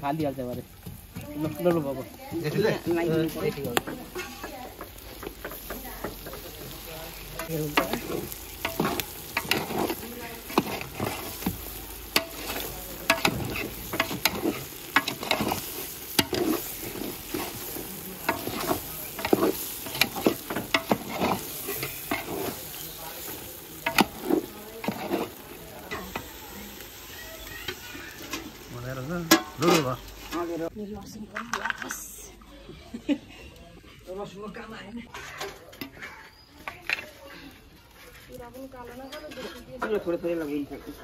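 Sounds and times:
meat sizzling in a pan: 0.0s - 30.7s
metal utensil scraping a pan: 2.4s - 30.7s, 35.1s - 37.1s, 39.0s - 40.3s.

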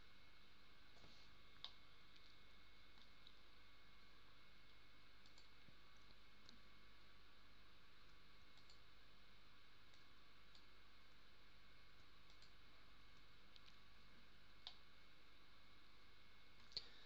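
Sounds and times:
quiet steady hiss: 0.0s - 17.0s
computer mouse clicks: 5.2s - 6.6s, 8.5s - 8.8s, 12.0s - 12.6s.

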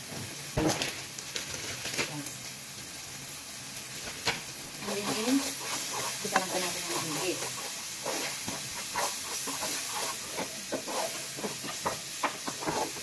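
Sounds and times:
vegetables sizzling in oil: 0.0s - 13.0s
wooden spoon scraping a pan: 4.8s - 13.0s.

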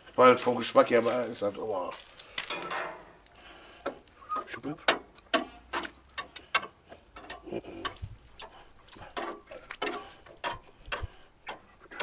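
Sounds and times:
metal tongs clicking on grill grate: 4.8s - 12.0s.

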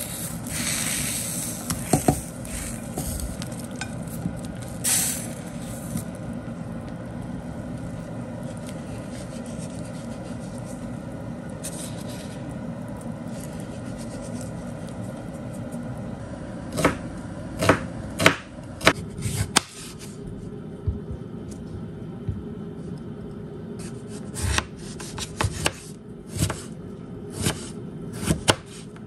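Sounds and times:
broth simmering and bubbling: 0.0s - 15.4s
knife chopping on a cutting board: 1.7s - 2.2s, 16.7s - 17.0s, 17.6s - 20.0s, 24.1s - 26.7s, 27.4s - 28.9s.

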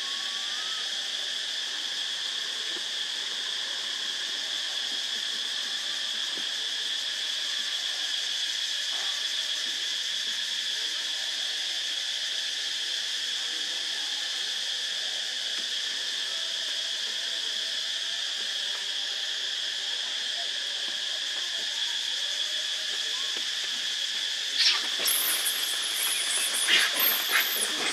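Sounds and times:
insect chorus droning: 0.0s - 27.9s.

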